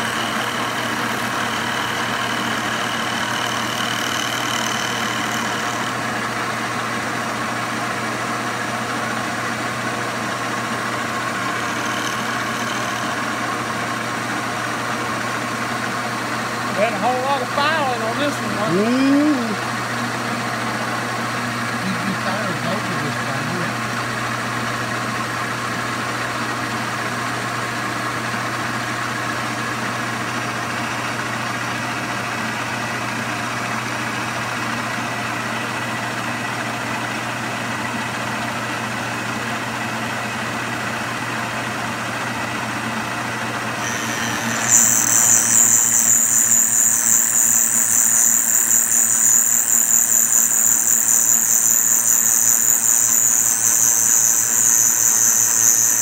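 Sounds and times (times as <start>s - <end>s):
high-pitched metal cutting squeal: 0.0s - 6.3s, 10.3s - 14.2s, 43.6s - 56.0s
milling machine motor hum: 0.0s - 26.0s, 29.7s - 56.0s.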